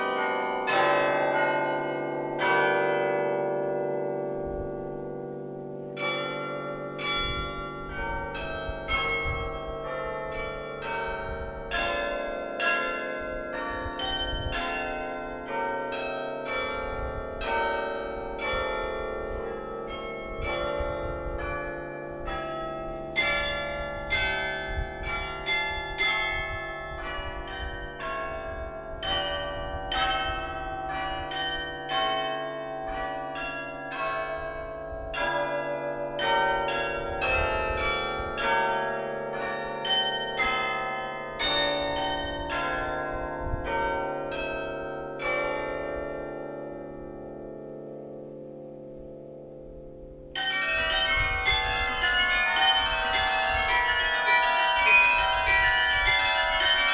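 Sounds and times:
carillon bells playing tune: 50.4s - 56.9s.

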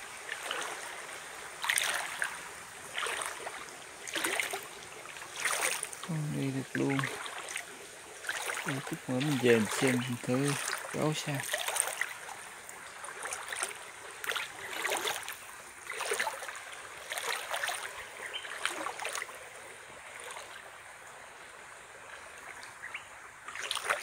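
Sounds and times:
flowing stream water: 0.0s - 24.0s
footsteps splashing in water: 1.6s - 19.4s, 20.2s - 20.7s, 23.5s - 24.0s.

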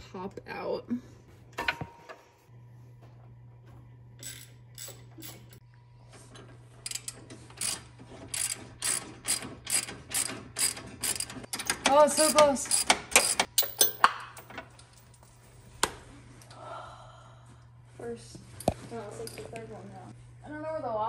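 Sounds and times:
ratchet wrench clicking: 6.8s - 14.0s.

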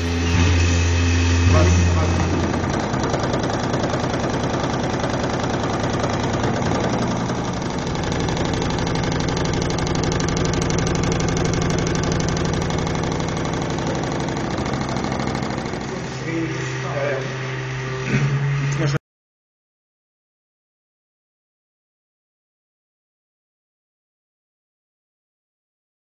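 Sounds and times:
low hum: 0.0s - 19.0s
motor running with fast pulse: 0.0s - 19.0s.

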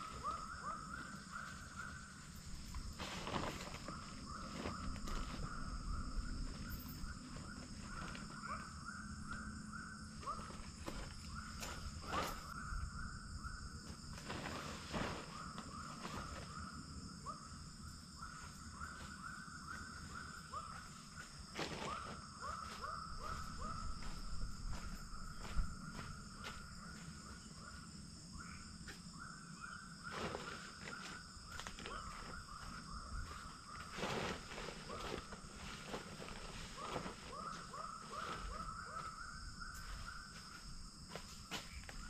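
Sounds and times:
insects droning: 0.0s - 42.0s
rustles and knocks at a tent: 2.4s - 8.5s, 10.2s - 12.6s, 13.8s - 16.7s, 30.1s - 42.0s.

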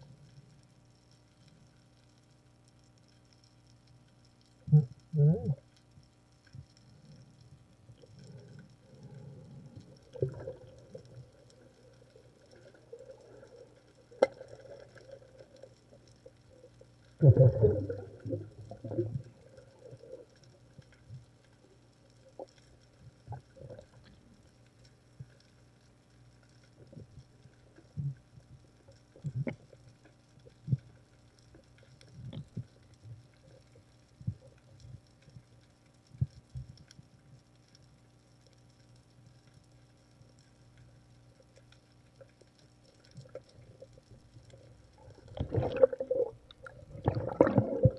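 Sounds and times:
underwater knocks and clicks: 5.4s - 21.5s, 26.8s - 35.5s, 41.6s - 47.9s
rumbling gurgling burst: 17.2s - 19.3s, 45.2s - 47.9s.

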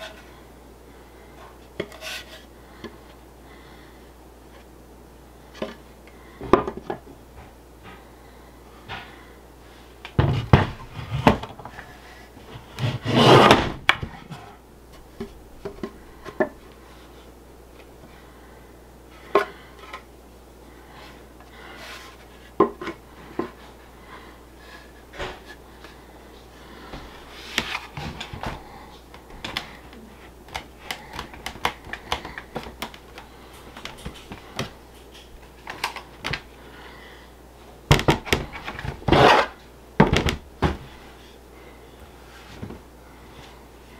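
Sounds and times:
wood scraping: 1.8s - 2.5s, 12.4s - 13.7s, 38.4s - 39.6s.

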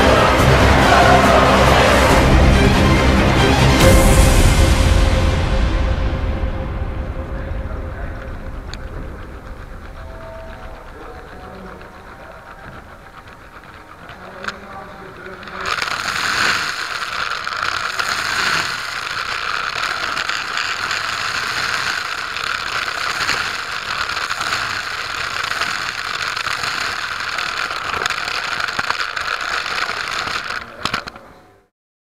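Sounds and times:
toy coaster rattling on plastic track: 8.1s - 31.7s.

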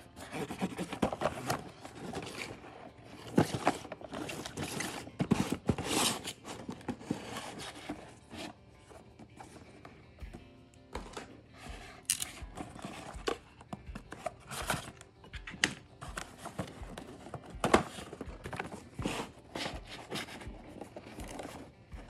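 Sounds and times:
cardboard boxes scraping on table: 0.2s - 9.6s, 16.0s - 21.7s.

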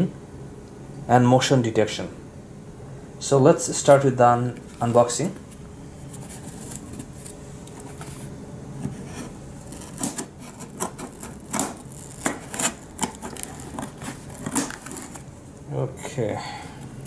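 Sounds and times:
scissors snipping tape: 9.7s - 15.2s.

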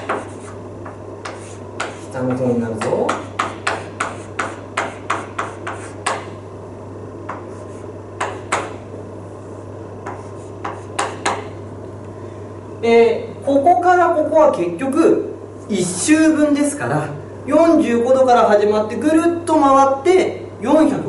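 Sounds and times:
chalk tapping on blackboard: 0.0s - 6.4s, 7.3s - 8.8s, 10.0s - 11.6s.

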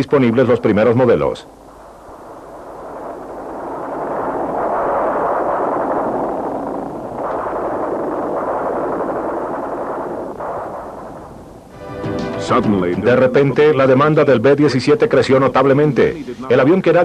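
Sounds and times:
explosions: 1.7s - 13.7s
gunfire: 7.1s - 11.7s.

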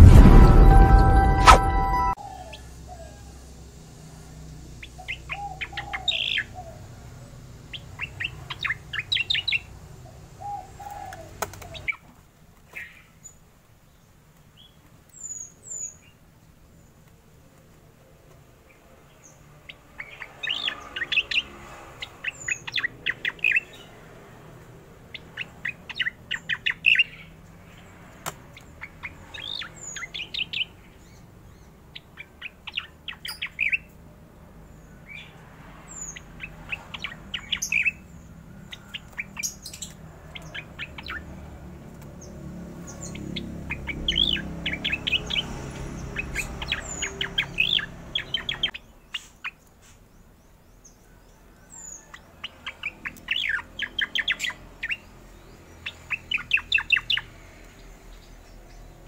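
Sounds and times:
low rumble: 0.0s - 2.2s.

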